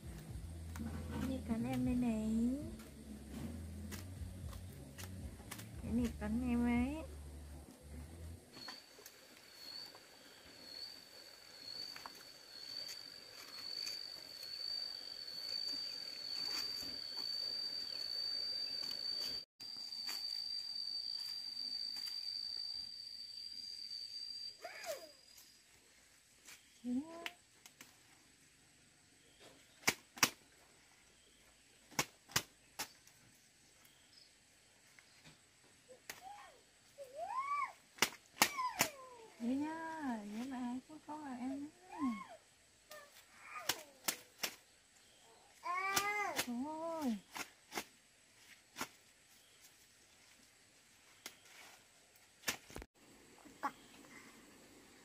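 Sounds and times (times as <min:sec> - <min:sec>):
insect high-pitched trill: 0:00.0 - 0:27.2, 0:32.8 - 0:47.6.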